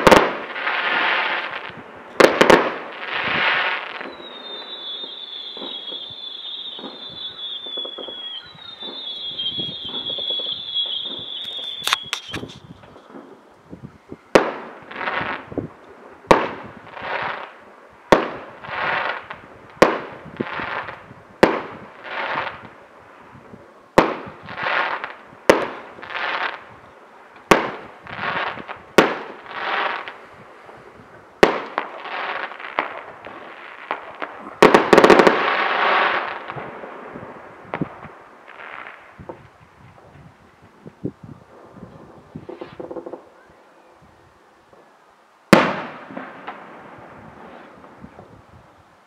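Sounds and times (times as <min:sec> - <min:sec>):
firework whistle: 0:03.0 - 0:12.9
firework shells bursting: 0:04.0 - 0:13.4.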